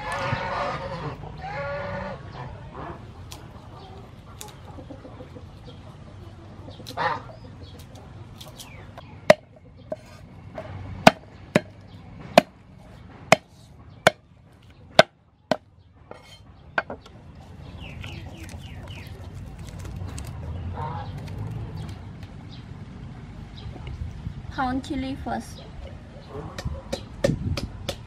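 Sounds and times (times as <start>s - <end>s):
hens clucking: 0.0s - 22.0s
cleaver striking wooden board: 9.3s - 10.1s, 11.0s - 11.8s, 15.0s - 15.6s.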